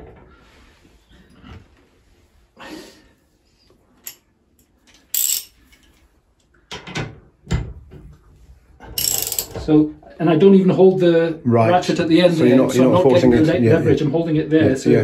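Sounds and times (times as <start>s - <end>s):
metal tools clinking and knocking: 4.0s - 6.0s, 8.8s - 9.7s.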